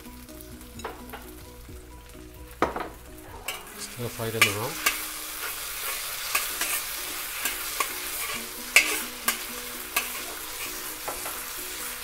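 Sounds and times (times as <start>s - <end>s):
food sizzling in oil: 0.0s - 12.0s
metal spatula scraping a wok: 3.5s - 12.0s.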